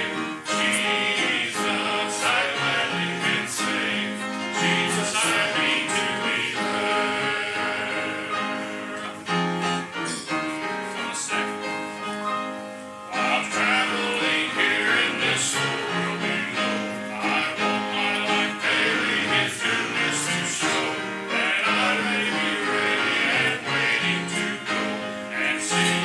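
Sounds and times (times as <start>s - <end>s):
gospel singing: 0.0s - 26.0s
instrumental accompaniment: 0.0s - 26.0s.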